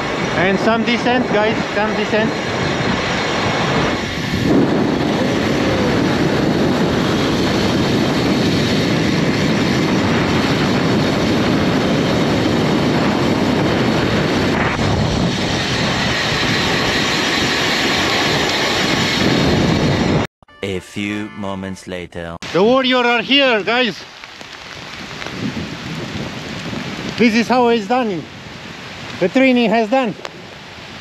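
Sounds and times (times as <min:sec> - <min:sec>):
wind buffeting microphone: 0:00.0 - 0:20.3, 0:24.4 - 0:31.0
tyre noise on wet asphalt: 0:23.8 - 0:27.4.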